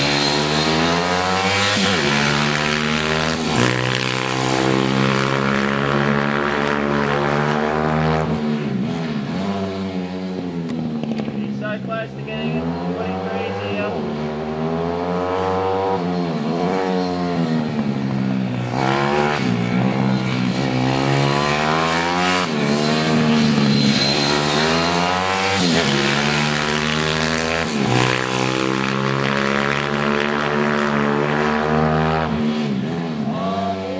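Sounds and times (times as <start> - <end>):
small motorbike engine revving: 0.0 - 8.4, 18.7 - 32.4.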